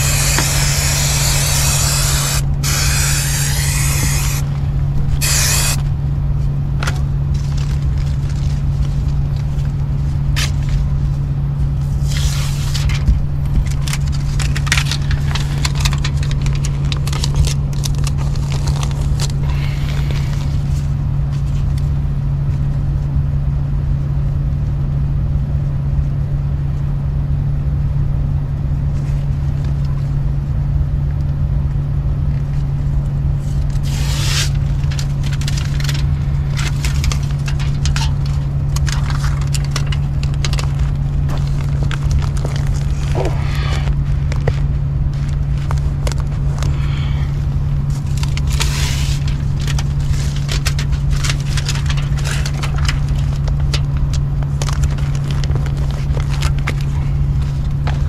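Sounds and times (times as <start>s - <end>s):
foil insulation crinkling: 0.0s - 5.9s, 6.8s - 21.9s, 33.4s - 58.0s
low steady hum: 0.0s - 58.0s.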